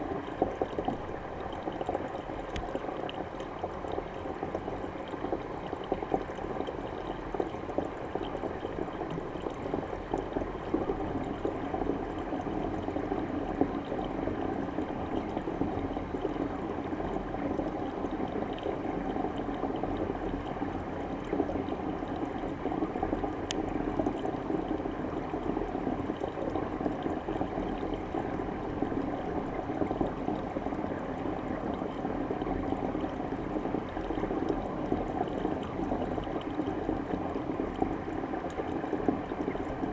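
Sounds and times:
water rushing into tank underwater: 0.0 - 39.9.

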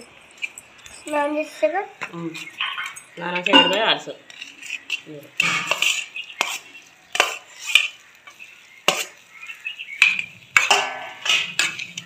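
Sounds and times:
metal spoon scraping steel pot: 2.5 - 9.2, 10.0 - 12.0.

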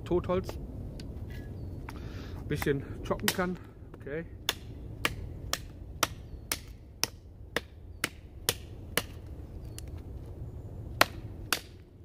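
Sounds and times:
knife chopping branch: 2.6 - 3.6, 4.4 - 9.3, 11.0 - 11.8.

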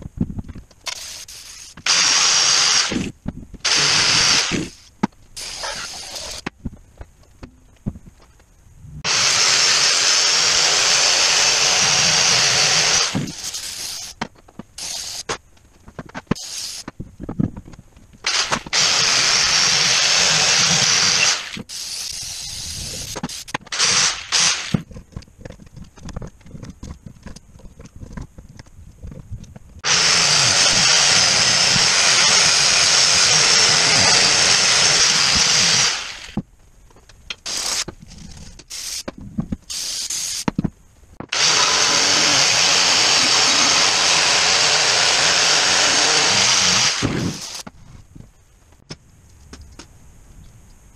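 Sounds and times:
angle grinder with wire brush: 3.7 - 6.5, 9.0 - 14.2, 14.8 - 15.3, 18.3 - 24.8, 29.8 - 36.4, 41.3 - 47.7.

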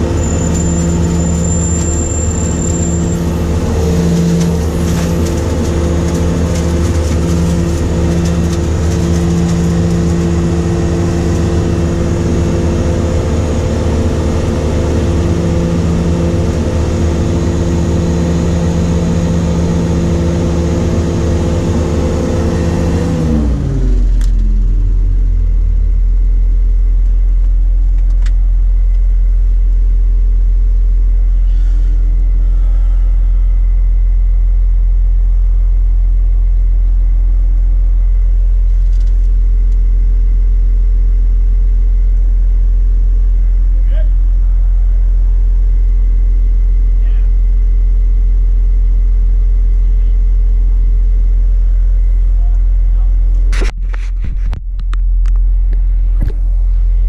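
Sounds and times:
harvester engine running: 0.0 - 57.0.

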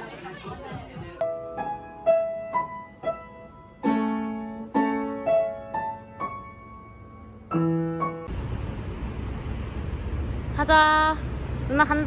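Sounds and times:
slow piano notes and chords: 1.2 - 8.3.

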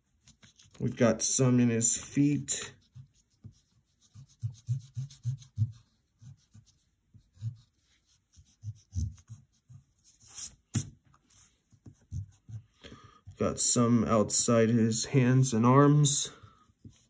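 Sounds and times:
eraser rubbing on paper: 0.0 - 12.8, 16.3 - 17.0.

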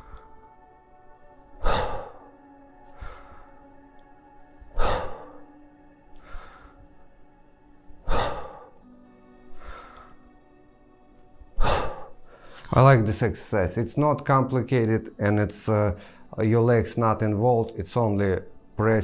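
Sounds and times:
man breathing hard: 0.0 - 0.6, 1.5 - 3.8, 4.6 - 7.1, 8.0 - 10.3, 11.6 - 12.7, 16.0 - 16.3.

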